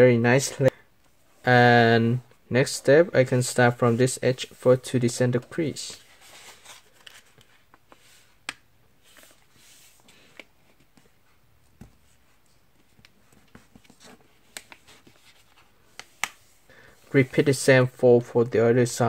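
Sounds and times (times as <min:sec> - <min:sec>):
paper rustling: 0:05.9 - 0:08.3.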